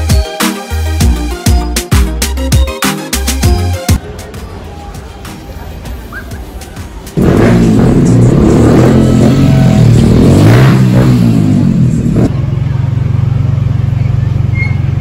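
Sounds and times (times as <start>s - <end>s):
vehicle engine revving: 7.2s - 15.0s.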